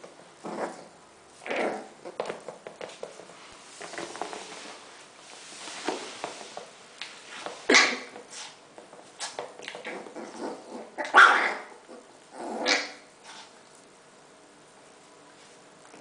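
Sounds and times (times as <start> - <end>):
rubber toy rubbing and dragging: 1.4 - 6.7.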